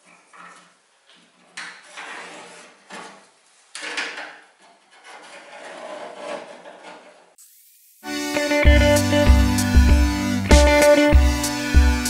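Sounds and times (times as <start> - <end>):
sheet metal scraping: 1.8 - 3.2, 4.7 - 7.3.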